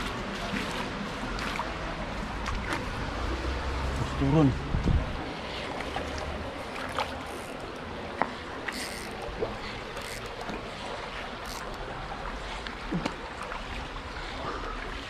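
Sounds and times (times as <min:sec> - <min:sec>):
shallow water trickling: 0:05.2 - 0:15.0.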